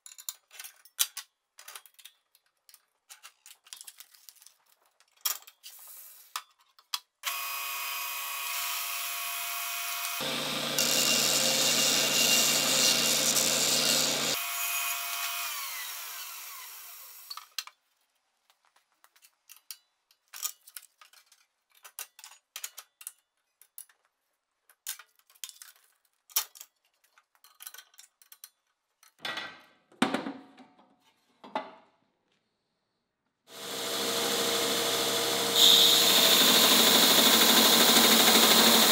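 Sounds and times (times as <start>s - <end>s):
belt grinder whining: 7.2s - 17.3s, 33.5s - 38.9s
hand tools clicking on machine: 34.3s - 38.9s.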